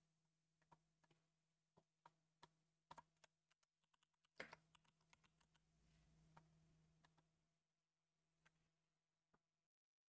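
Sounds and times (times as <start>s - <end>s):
typing on computer keyboard: 2.4s - 5.6s.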